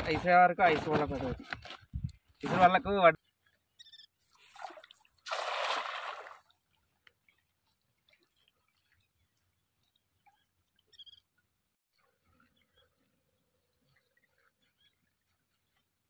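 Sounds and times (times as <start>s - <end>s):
cast net splashing into water: 4.2s - 6.6s.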